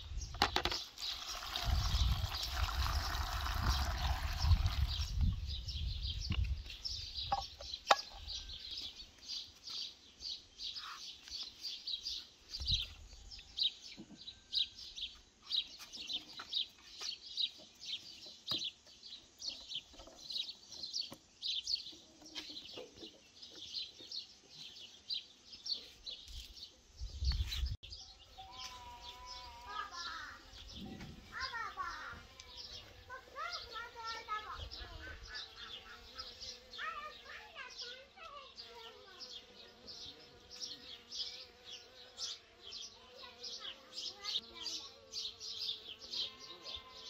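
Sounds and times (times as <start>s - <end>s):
small birds chirping: 0.0s - 47.0s
water pouring into metal pot: 0.9s - 5.1s.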